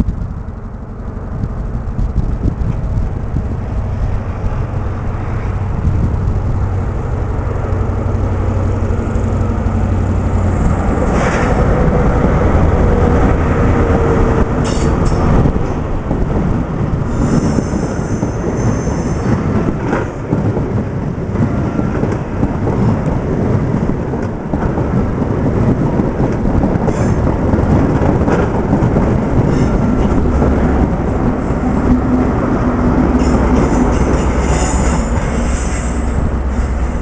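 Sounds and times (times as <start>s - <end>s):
low diesel engine drone: 0.0s - 37.0s
train rumbling past: 0.0s - 37.0s
high-pitched wheel squeals: 17.1s - 19.5s.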